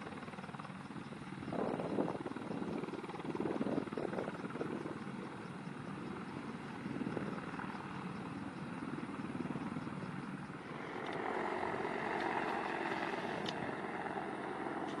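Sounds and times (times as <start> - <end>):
helicopter flying past: 0.0 - 15.0.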